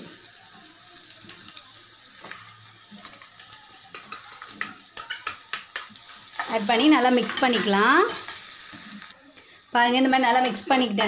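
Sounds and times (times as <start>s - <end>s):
food sizzling in a metal pan: 0.0s - 11.0s
spoon tapping: 3.9s - 6.5s.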